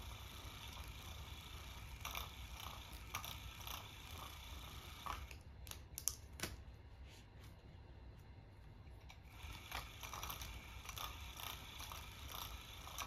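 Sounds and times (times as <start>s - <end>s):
toy motor whirring: 0.0s - 5.4s, 9.2s - 13.0s.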